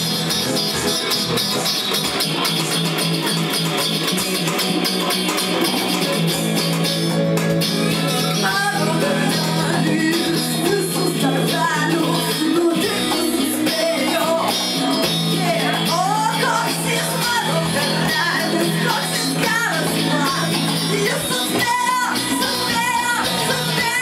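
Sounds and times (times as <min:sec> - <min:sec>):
electric guitar playing: 0:00.0 - 0:24.0
woman singing: 0:08.2 - 0:24.0.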